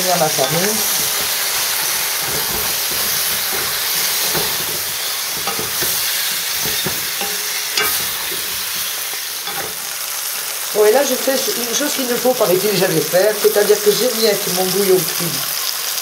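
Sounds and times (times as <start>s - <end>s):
wooden spoon scraping a pot: 0.0s - 10.0s
meat sizzling in a pot: 0.0s - 16.0s
spoon knocking against pot: 0.4s - 9.9s.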